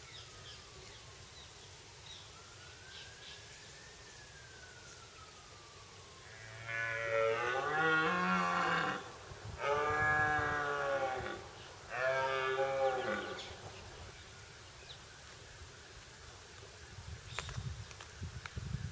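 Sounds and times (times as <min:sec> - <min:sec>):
deer stag roaring: 0:06.3 - 0:13.5.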